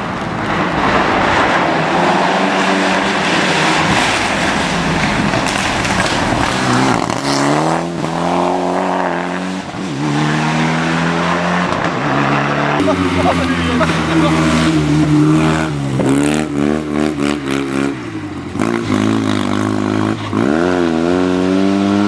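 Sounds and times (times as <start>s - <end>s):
tyre noise: 0.0s - 8.8s
rally car engine revving: 0.0s - 22.0s.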